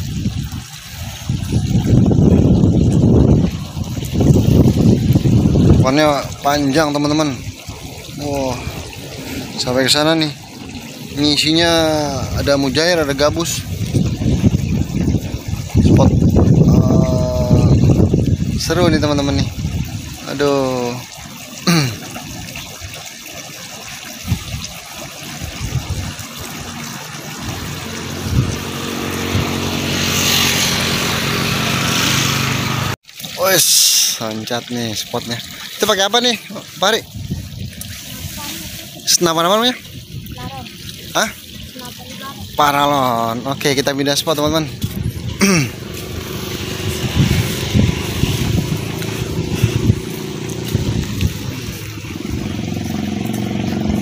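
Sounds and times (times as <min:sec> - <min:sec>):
motor traffic rumble: 0:00.0 - 0:21.0, 0:25.6 - 0:33.0, 0:40.0 - 0:54.0
vehicle engine hum: 0:27.3 - 0:33.0, 0:45.0 - 0:54.0.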